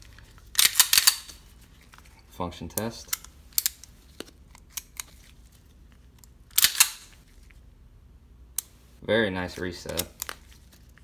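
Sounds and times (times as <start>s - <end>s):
pistol slide clacking: 0.6s - 1.4s, 6.5s - 7.1s.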